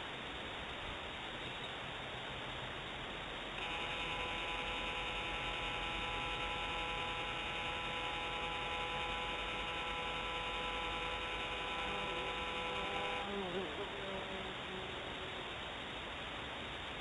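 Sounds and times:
steady hiss: 0.0s - 17.0s
camera motor whining: 3.6s - 15.7s.

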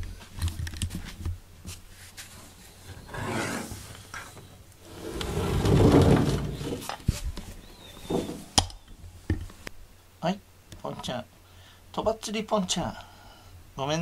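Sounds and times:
bowl handling rubbing: 4.9s - 8.6s.

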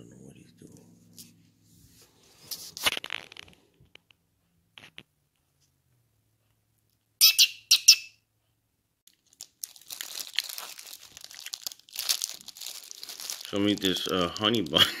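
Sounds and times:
plastic wrapper crinkling and tearing: 9.1s - 14.9s.

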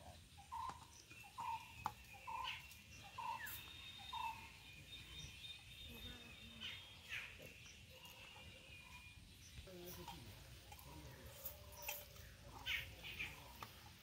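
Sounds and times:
faint high bird chirps: 0.0s - 10.1s.

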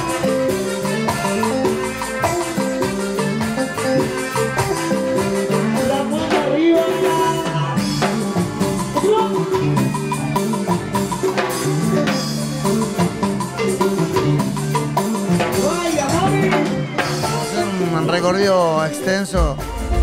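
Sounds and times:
person singing: 0.0s - 10.8s
drums and percussion beat: 0.0s - 20.0s.

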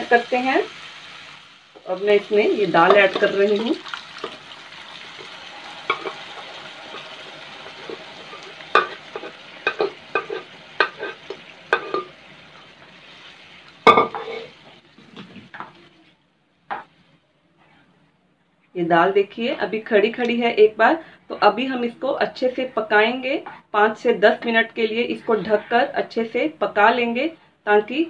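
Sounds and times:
lentils sizzling in oil: 0.0s - 15.8s
spatula knocking against pan: 8.7s - 12.1s.

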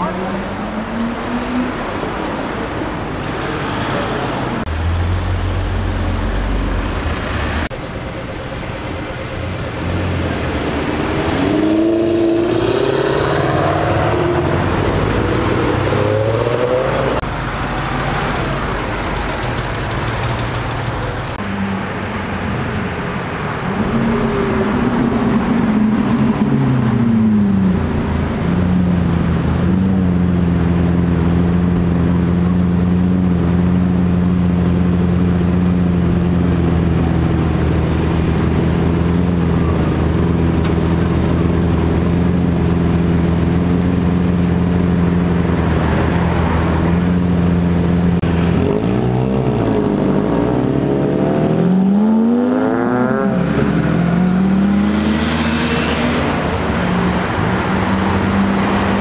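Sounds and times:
car engines revving: 0.0s - 59.0s
deep car engine rolling by: 23.4s - 59.0s.

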